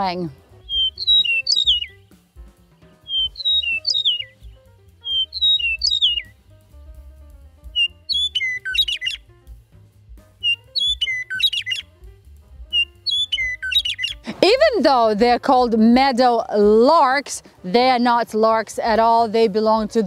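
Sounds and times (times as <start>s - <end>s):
bird whistling slurred phrases: 0.0s - 2.0s, 3.1s - 6.3s, 7.7s - 9.2s, 10.4s - 11.9s, 12.7s - 14.2s
bird warbling flute-like: 0.0s - 2.2s, 3.0s - 6.4s, 7.7s - 9.3s, 10.4s - 12.0s, 12.7s - 14.6s.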